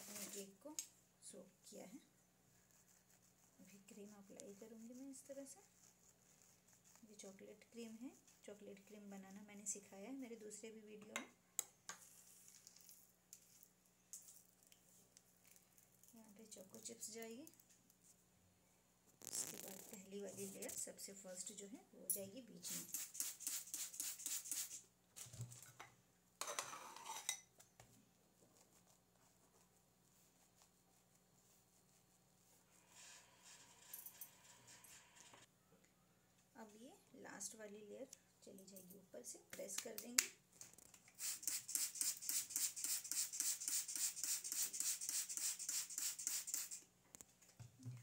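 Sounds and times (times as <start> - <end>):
faint handling sounds: 1.8 - 9.0, 11.9 - 21.2, 27.1 - 41.2
spray bottle squirts: 22.7 - 24.8, 41.1 - 46.8.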